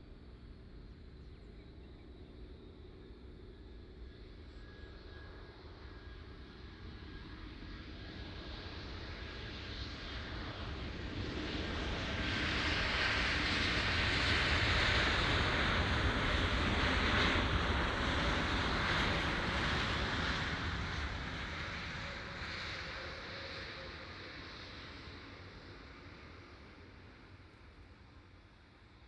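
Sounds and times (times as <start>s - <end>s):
jet airliner rolling on runway: 0.0s - 29.0s.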